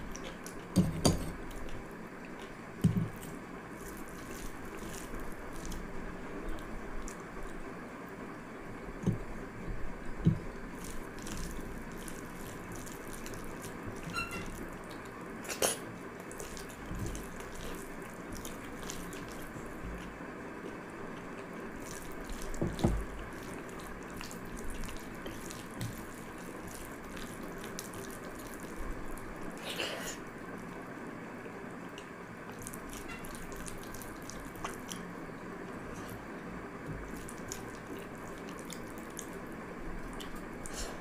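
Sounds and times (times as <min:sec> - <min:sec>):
wet squelching and sloshing: 0:01.5 - 0:06.0, 0:10.7 - 0:20.2, 0:21.7 - 0:30.2, 0:37.0 - 0:41.0.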